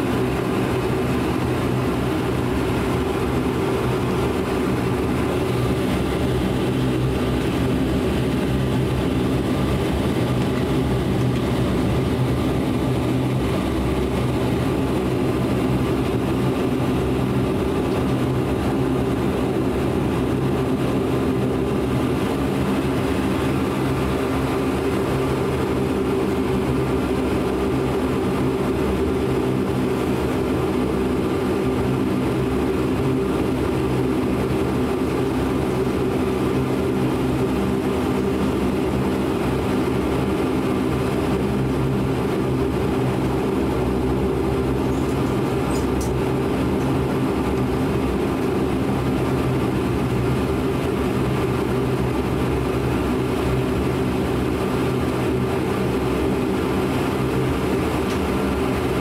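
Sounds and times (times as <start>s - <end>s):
turboprop cabin drone: 0.0s - 59.0s.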